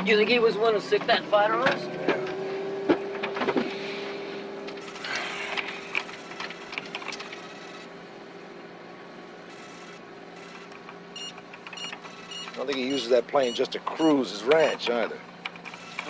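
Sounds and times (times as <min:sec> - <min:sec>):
steady electronic hum: 0:03.8 - 0:16.0.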